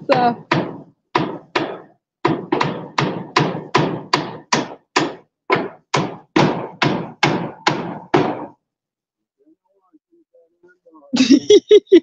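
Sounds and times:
hammer on metal roofing: 0:00.0 - 0:08.6.

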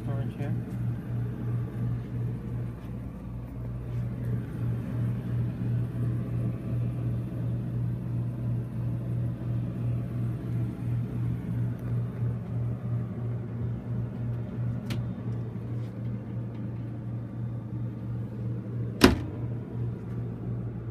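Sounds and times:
air conditioner humming: 0:00.0 - 0:20.9.

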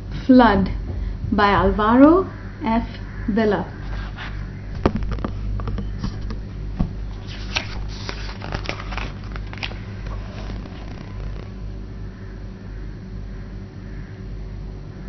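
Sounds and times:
steady low hum: 0:00.0 - 0:15.0
paper pages rustling: 0:07.1 - 0:11.6.

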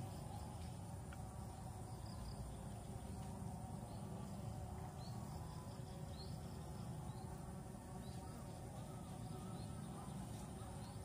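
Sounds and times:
bird chirps: 0:00.0 - 0:11.0
high insect drone: 0:00.0 - 0:11.0
low steady rumble: 0:00.0 - 0:11.0.

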